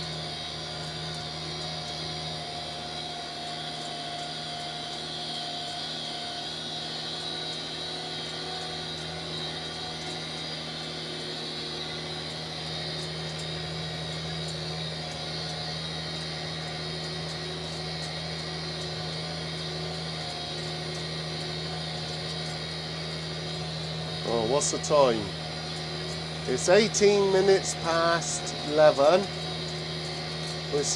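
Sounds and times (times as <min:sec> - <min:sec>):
high whine: 0:00.0 - 0:30.9
tractor engine running: 0:00.0 - 0:30.9.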